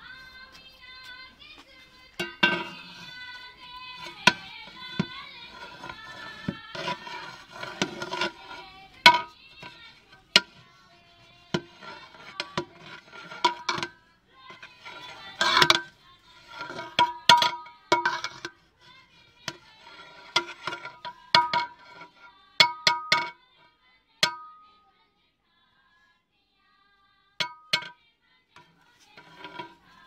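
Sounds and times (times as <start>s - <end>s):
pot ringing: 2.2s - 10.6s, 11.6s - 14.0s, 15.0s - 18.5s, 20.2s - 22.0s, 22.6s - 23.4s, 24.2s - 24.7s, 27.4s - 28.0s
metal spatula clanking on pot: 2.2s - 10.7s, 11.5s - 18.6s, 19.5s - 23.4s, 24.2s - 24.6s, 27.4s - 28.0s, 29.2s - 29.9s.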